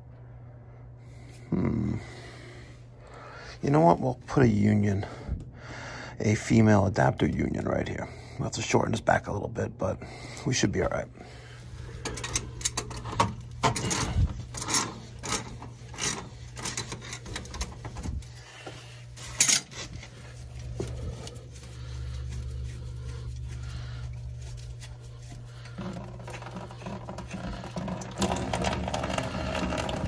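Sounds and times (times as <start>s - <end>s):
steady low hum: 0.0s - 30.0s
handling rubbing and scraping: 11.5s - 30.0s.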